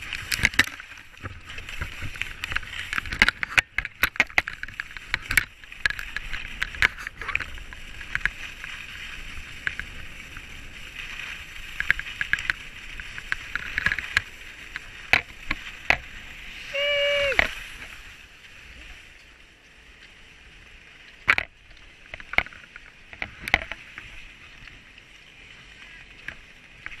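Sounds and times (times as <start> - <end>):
skis hissing over snow: 0.0 - 3.1, 4.6 - 21.2, 23.8 - 27.0
sharp clicks and knocks: 0.1 - 8.4, 21.2 - 23.8.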